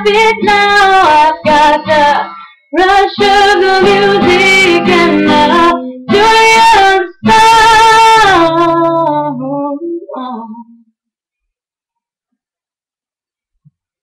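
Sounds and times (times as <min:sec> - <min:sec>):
acoustic guitar: 0:00.0 - 0:10.2
woman singing: 0:00.0 - 0:10.9.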